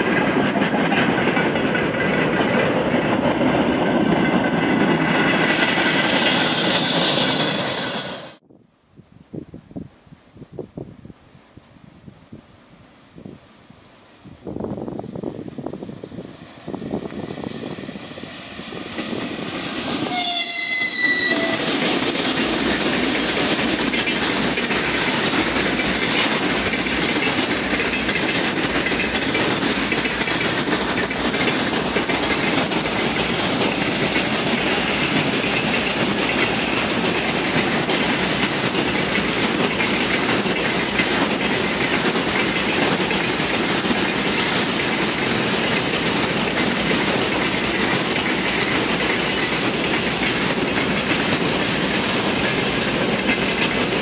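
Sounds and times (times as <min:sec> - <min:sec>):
freight train rumbling past: 0:00.0 - 0:08.4, 0:12.7 - 0:54.0
wheels clacking over rail joints: 0:00.0 - 0:08.4, 0:17.0 - 0:54.0
locomotive horn blast: 0:20.1 - 0:21.7.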